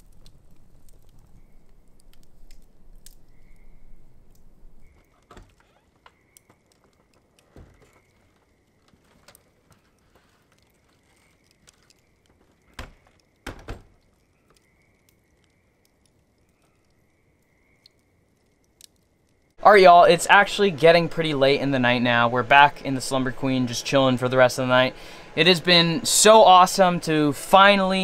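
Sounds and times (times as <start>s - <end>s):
sharp knocks and clicks: 12.4s - 14.6s.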